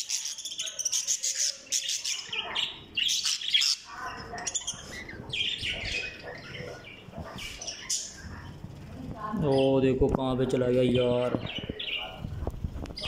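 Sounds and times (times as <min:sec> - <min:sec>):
parrots squawking: 0:00.0 - 0:08.7.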